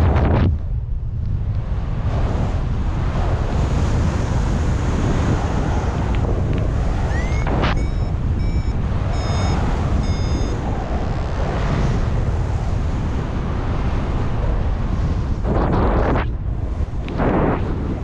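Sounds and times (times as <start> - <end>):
wind buffeting microphone: 0.0 - 18.0
high electronic beeps: 7.1 - 10.6.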